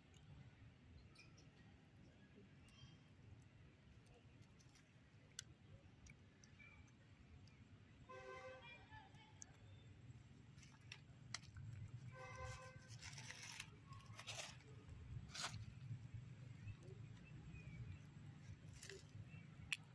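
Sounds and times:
soft rustles and clicks: 0:10.5 - 0:19.9.

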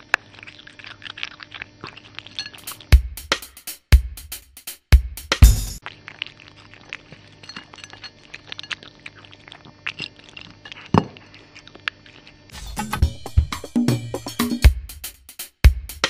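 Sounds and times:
cat crunching dry food: 0:00.0 - 0:02.9, 0:05.8 - 0:12.4.

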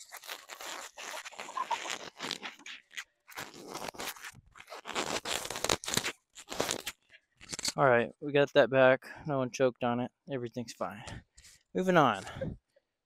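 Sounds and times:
microphone handling noise: 0:12.2 - 0:12.6.

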